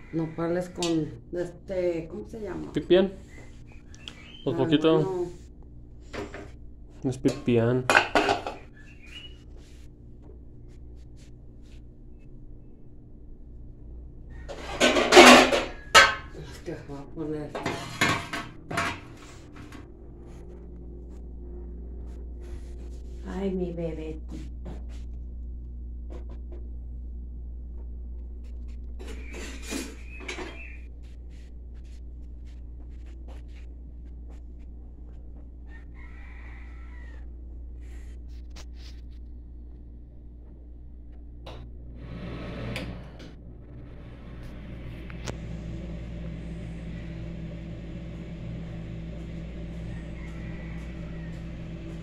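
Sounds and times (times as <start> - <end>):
faint kitchen hum: 0.0 - 52.0
cookware clicking and clinking: 7.3 - 8.6, 14.6 - 16.3.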